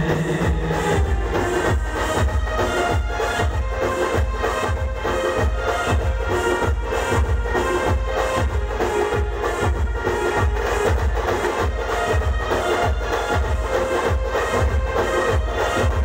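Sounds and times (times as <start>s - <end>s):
electronic-sounding melody: 0.0s - 2.1s
heavy bass drum beat: 0.0s - 16.0s.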